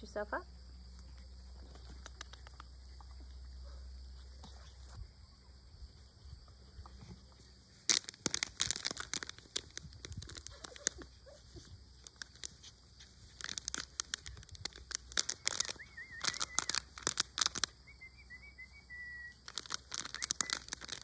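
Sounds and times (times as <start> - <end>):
plastic bag crinkling: 7.8 - 17.8, 19.4 - 21.0.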